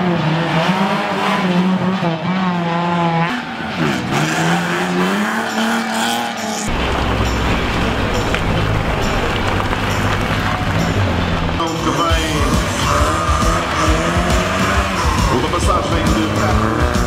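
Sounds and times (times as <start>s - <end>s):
rally car engine revving: 0.0s - 17.0s
deep engine at low revs: 12.2s - 17.0s.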